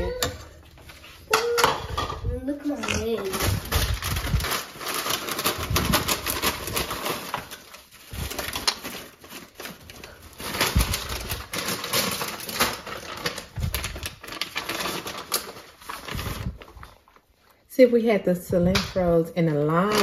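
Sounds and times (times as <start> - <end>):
dishes and utensils clattering: 0.0 - 3.4.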